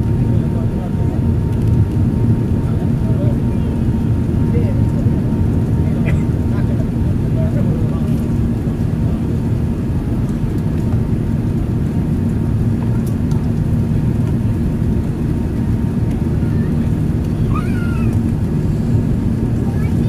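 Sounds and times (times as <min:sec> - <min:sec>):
jet engines rumbling: 0:00.0 - 0:20.0
steady low hum: 0:00.0 - 0:20.0.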